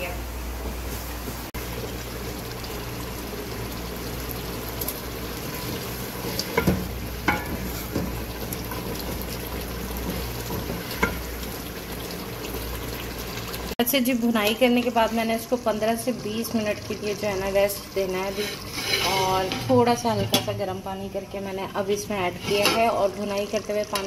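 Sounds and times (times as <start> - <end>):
lentils frying and bubbling: 1.5 - 20.0, 21.1 - 24.0
spoon scraping and knocking pot: 6.2 - 8.2, 18.2 - 20.5, 21.9 - 23.0.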